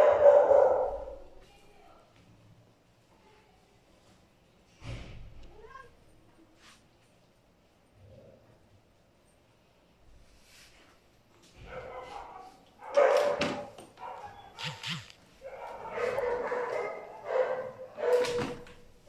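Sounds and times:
small dog whining and yipping: 0:14.3 - 0:15.0.

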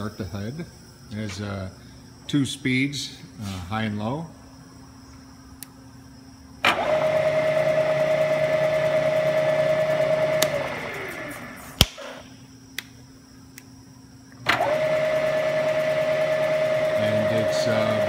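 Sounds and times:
milling spindle motor whine: 0:03.8 - 0:12.7, 0:13.3 - 0:18.0
sharp click: 0:11.8 - 0:13.7.

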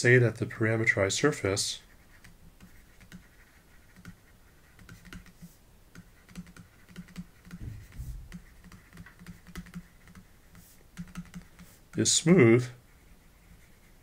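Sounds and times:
stylus tapping on pen tablet: 0:03.9 - 0:04.2, 0:04.8 - 0:11.8
dull low knocks: 0:07.6 - 0:08.5.

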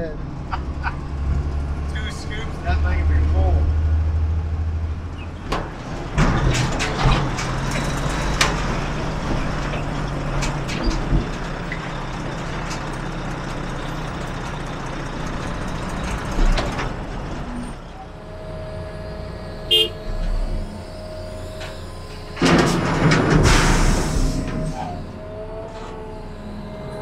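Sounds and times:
heavy diesel machinery running: 0:00.0 - 0:27.0
metal clanks and knocks: 0:05.4 - 0:11.9, 0:22.4 - 0:24.8.

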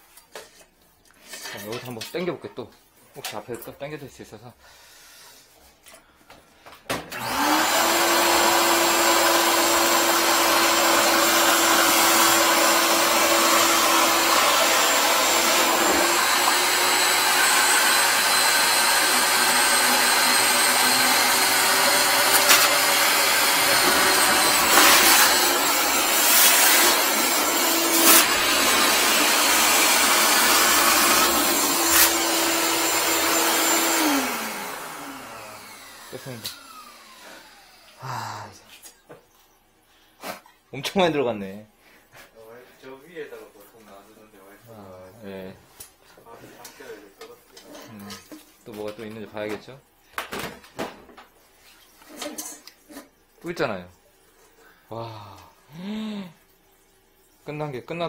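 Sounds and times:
shop vacuum running: 0:07.1 - 0:38.1.

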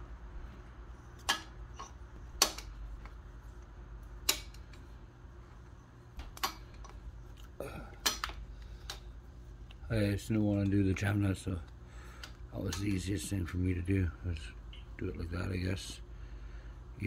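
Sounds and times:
low steady hum: 0:00.0 - 0:17.0
metal clicks of hand tools: 0:04.2 - 0:04.8.

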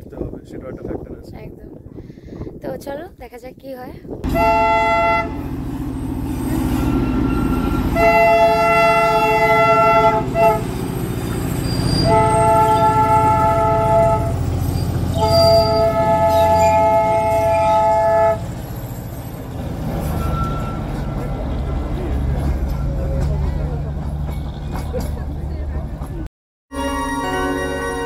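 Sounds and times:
train horn blowing: 0:04.2 - 0:05.6, 0:06.2 - 0:10.9, 0:11.6 - 0:14.5, 0:15.1 - 0:18.5
low engine rumble: 0:04.2 - 0:26.3.

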